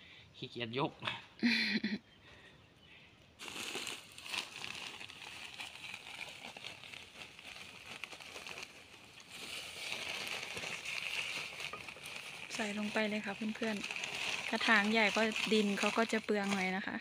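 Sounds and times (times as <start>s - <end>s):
plastic sack crinkling: 3.4s - 17.0s.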